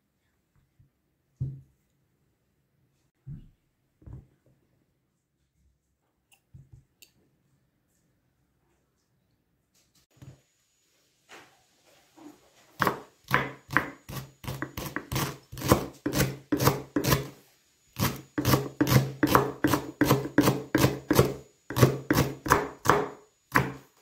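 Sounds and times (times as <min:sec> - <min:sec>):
knife chopping on wooden board: 0:12.8 - 0:17.3, 0:18.0 - 0:23.9.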